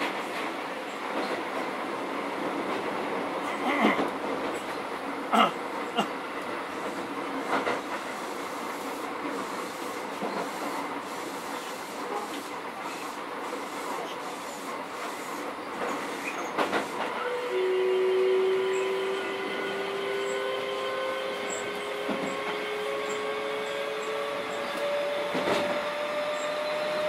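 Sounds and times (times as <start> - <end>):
steady train whine: 0.0 - 27.0
train wheels rumbling on rail: 0.0 - 27.0
train wheel clacks: 3.8 - 17.2, 21.4 - 23.2.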